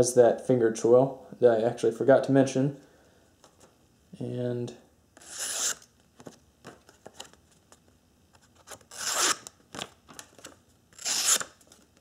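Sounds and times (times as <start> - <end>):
knife slicing paper: 5.2 - 5.8, 8.9 - 9.4, 11.0 - 11.6.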